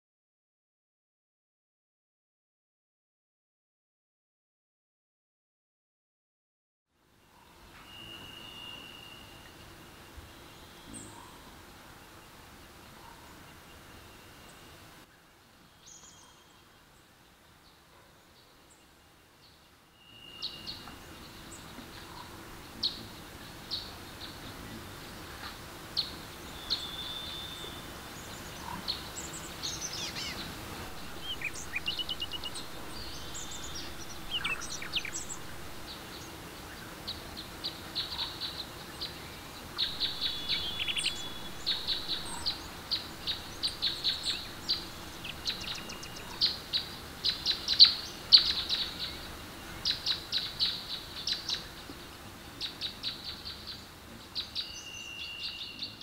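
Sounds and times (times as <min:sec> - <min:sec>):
birds chirping and trilling: 0:07.2 - 0:11.6, 0:19.4 - 0:51.8.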